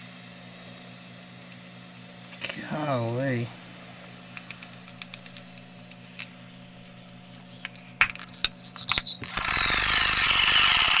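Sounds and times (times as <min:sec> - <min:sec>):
motor high whine: 0:00.0 - 0:11.0
sharp clicks: 0:04.3 - 0:05.5.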